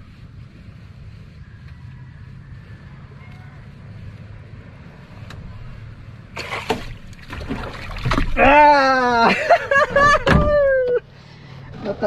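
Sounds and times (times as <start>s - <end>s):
splash in water: 6.4s - 8.5s
man calling wordlessly: 8.4s - 9.3s.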